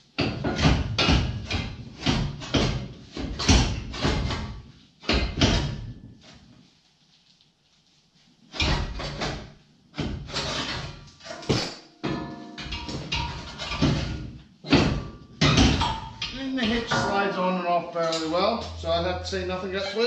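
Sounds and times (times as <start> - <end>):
steel hitch clanking on metal: 10.4 - 17.4.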